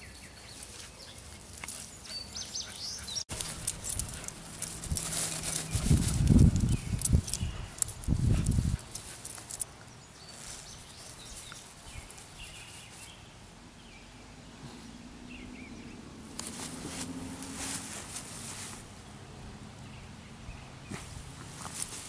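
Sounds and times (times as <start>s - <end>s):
rustling and snuffling: 0.5s - 13.2s, 16.3s - 18.9s, 20.8s - 22.0s
dog sniffing through grass: 0.6s - 13.1s.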